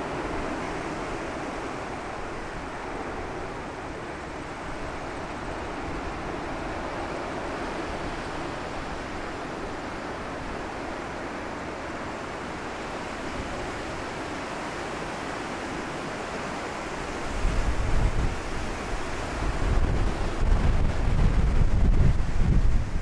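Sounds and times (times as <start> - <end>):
surf breaking on shore: 0.0 - 23.0
wind gusts buffeting microphone: 15.3 - 23.0.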